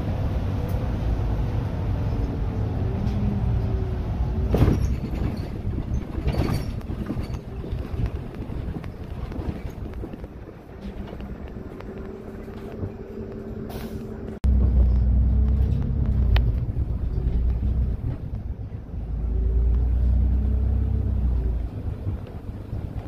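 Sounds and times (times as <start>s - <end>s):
bus engine hum: 0.0s - 23.0s
loud low rumble: 11.0s - 23.0s.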